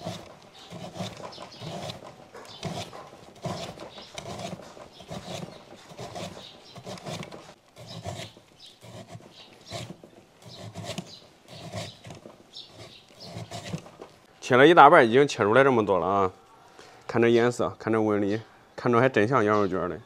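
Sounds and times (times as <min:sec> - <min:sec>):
meat slicer chopping: 0:00.0 - 0:14.0.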